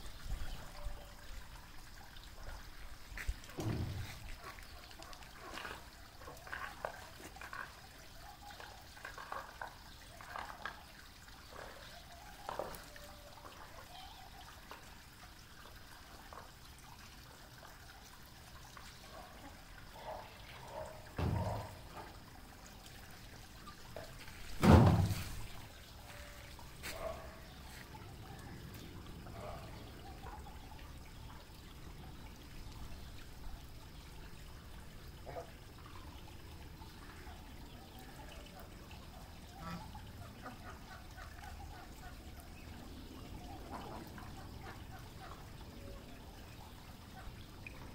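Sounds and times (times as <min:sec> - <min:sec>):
ducks splashing in puddle: 0:01.3 - 0:30.8, 0:38.0 - 0:46.1.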